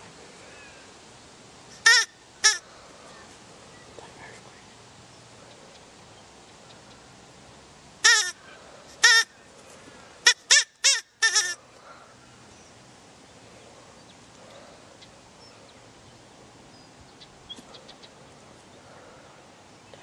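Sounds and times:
faint hiss: 0:00.0 - 0:20.0
rabbit crying: 0:01.8 - 0:02.6, 0:08.0 - 0:08.4, 0:09.0 - 0:09.3, 0:10.3 - 0:11.6.

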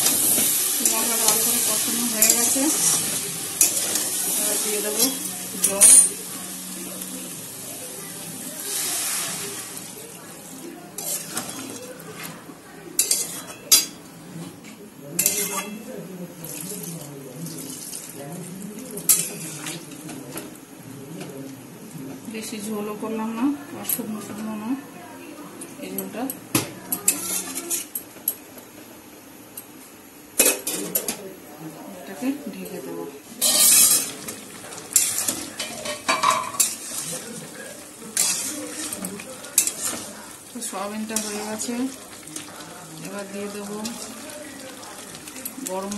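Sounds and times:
faint curry sizzle: 0:00.0 - 0:26.2, 0:31.7 - 0:45.9
spatula clanging against pan: 0:02.2 - 0:06.2, 0:13.0 - 0:14.0, 0:15.2 - 0:15.8, 0:33.4 - 0:34.2, 0:34.9 - 0:37.1, 0:38.2 - 0:40.1
metal spatula scraping pan: 0:38.1 - 0:41.8.

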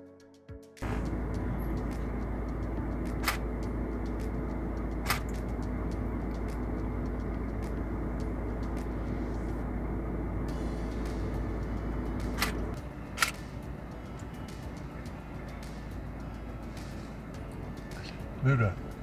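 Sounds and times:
steady low rumbling: 0:00.8 - 0:19.0
sharp clicks: 0:01.8 - 0:08.9, 0:12.2 - 0:13.4.

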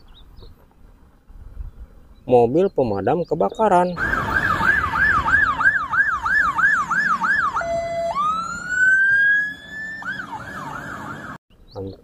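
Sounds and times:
fire engine siren: 0:04.0 - 0:11.4.

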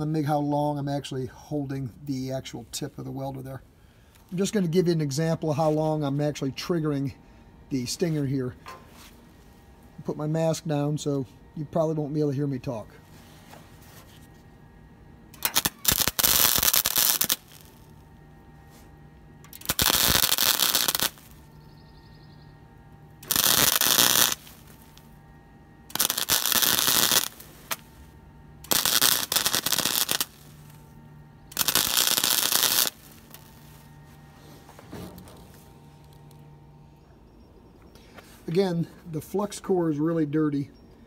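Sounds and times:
low hum: 0:00.0 - 0:41.0
welder arc crackling: 0:15.3 - 0:21.6, 0:22.9 - 0:34.4, 0:35.1 - 0:36.5.

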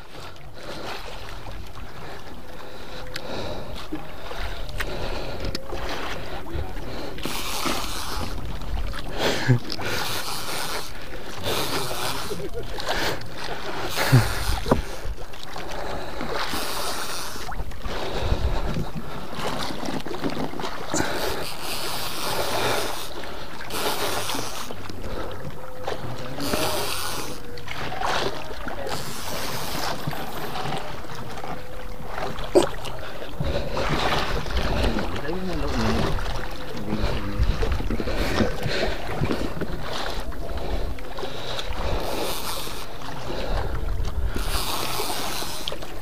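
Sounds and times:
sea water around boat: 0:00.0 - 0:46.0
man breathing heavily: 0:02.0 - 0:07.3, 0:09.0 - 0:10.2, 0:20.9 - 0:24.4, 0:36.4 - 0:42.5
fishing reel cranking: 0:07.2 - 0:08.4, 0:09.7 - 0:13.2, 0:13.8 - 0:15.1, 0:16.4 - 0:17.6, 0:21.0 - 0:24.8, 0:26.4 - 0:27.5, 0:28.9 - 0:30.6, 0:41.8 - 0:43.0, 0:44.3 - 0:45.9
wind buffeting microphone: 0:17.5 - 0:20.3, 0:32.5 - 0:42.2, 0:42.9 - 0:44.6.

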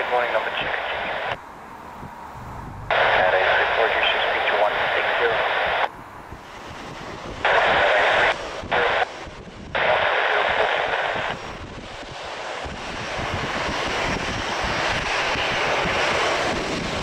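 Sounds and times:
scanner radio transmission bursts: 0:00.0 - 0:01.4, 0:02.5 - 0:05.9, 0:07.4 - 0:09.2, 0:09.8 - 0:11.5
low jet rumble: 0:00.0 - 0:17.0
wind buffeting microphone: 0:01.4 - 0:17.0.

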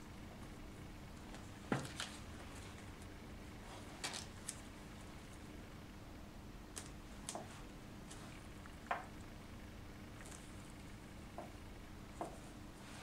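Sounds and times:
low steady hum: 0:00.0 - 0:13.0
soft crackles of plastic backing: 0:01.2 - 0:05.4.

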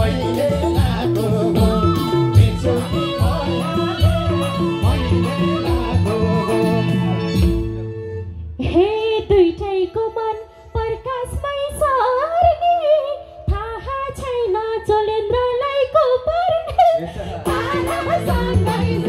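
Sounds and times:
band playing: 0:00.0 - 0:08.6
woman singing into a microphone: 0:08.6 - 0:19.0.

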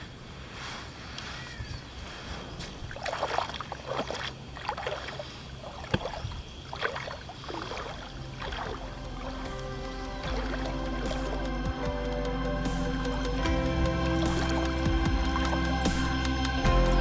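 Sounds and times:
person wading through water: 0:00.8 - 0:11.5.

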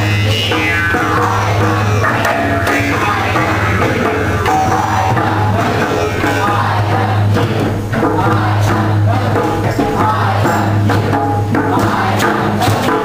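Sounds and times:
shifting melody: 0:00.0 - 0:07.3
low music drone: 0:00.0 - 0:09.2
hand drum percussion: 0:00.0 - 0:13.0.

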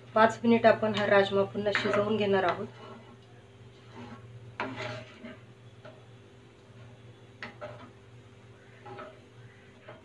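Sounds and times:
steady low hum: 0:00.0 - 0:10.0
spatula scraping metal pan: 0:01.7 - 0:06.1, 0:06.7 - 0:08.0, 0:08.6 - 0:10.0
spatula stirring thick curry: 0:01.7 - 0:10.0.

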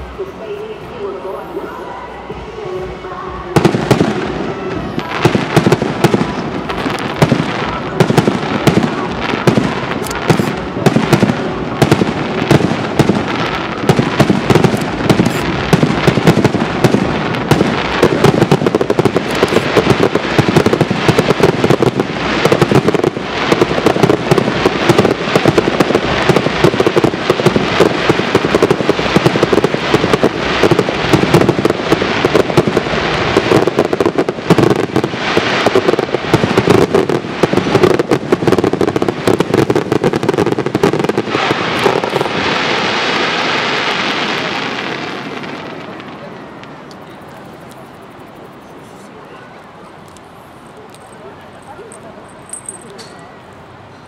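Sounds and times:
fireworks bangs and crackles: 0:00.0 - 0:53.9.

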